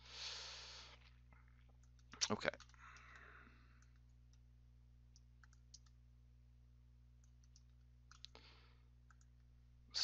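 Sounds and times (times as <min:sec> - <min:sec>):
low electrical hum: 0:00.0 - 0:10.0
computer mouse clicks: 0:01.7 - 0:04.5, 0:05.1 - 0:06.0, 0:07.2 - 0:08.4, 0:09.0 - 0:09.5.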